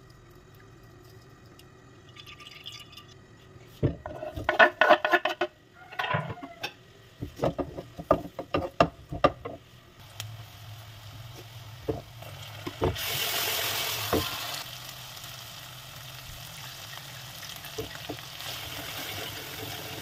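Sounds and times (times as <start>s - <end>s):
metal pots and pans knocking: 3.8s - 9.6s
wooden spatula knocking and scraping: 3.8s - 9.6s.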